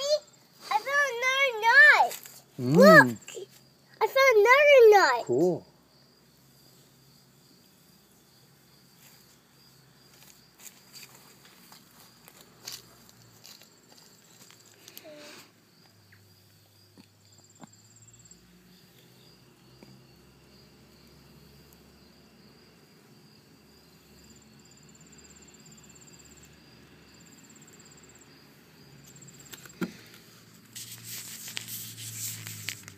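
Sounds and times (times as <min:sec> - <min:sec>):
background hiss: 0:00.0 - 0:32.9
insect trills: 0:00.0 - 0:32.9
rubbing noise: 0:30.7 - 0:32.9.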